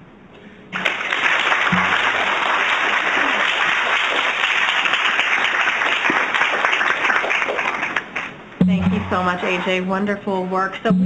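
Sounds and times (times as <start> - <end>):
audience applauding: 0.7 - 8.4.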